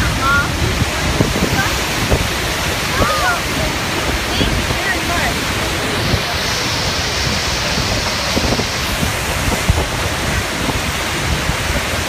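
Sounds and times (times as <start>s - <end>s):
waterfall rushing: 0.0s - 12.0s
wind buffeting microphone: 0.0s - 12.0s.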